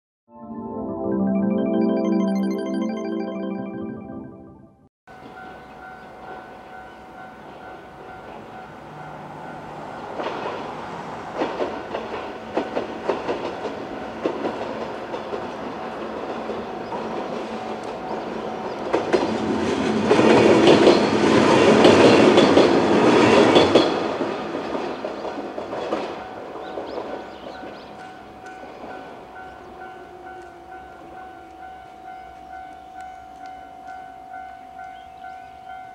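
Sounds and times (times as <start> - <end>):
train passing: 5.1 - 35.9
train wheels clattering: 6.2 - 29.2.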